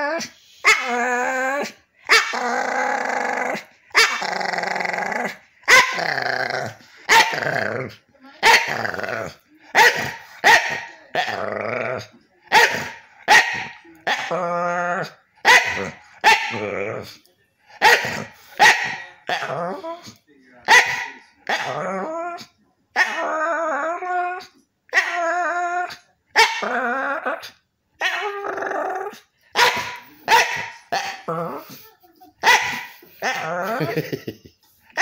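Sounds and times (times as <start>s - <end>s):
dog grumbling vocalizations: 2.4s - 6.8s.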